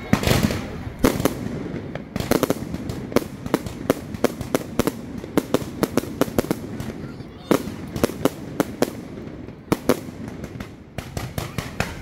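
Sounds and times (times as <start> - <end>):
fireworks bangs and pops: 0.0 - 12.0.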